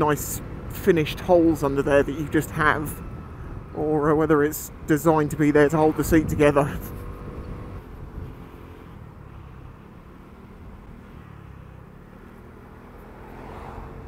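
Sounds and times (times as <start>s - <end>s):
wind and road noise: 0.0s - 14.0s.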